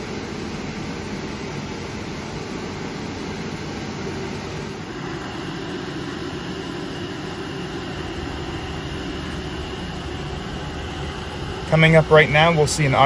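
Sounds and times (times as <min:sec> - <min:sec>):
dust collection airflow: 0:00.0 - 0:13.0
faint high whine: 0:00.0 - 0:13.0
router machine running: 0:04.8 - 0:13.0.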